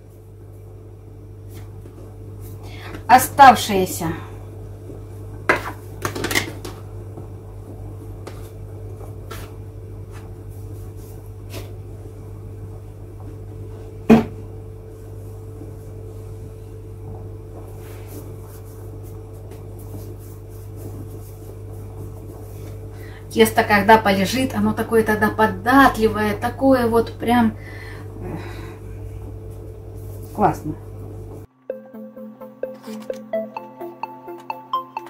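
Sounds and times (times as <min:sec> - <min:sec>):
low appliance hum: 0:00.0 - 0:31.6
knocks on kitchen worktop: 0:14.1 - 0:14.4.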